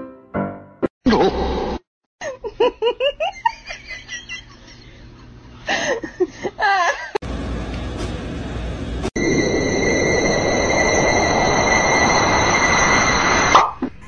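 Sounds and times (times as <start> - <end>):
person laughing: 1.1 - 1.5, 2.2 - 7.2.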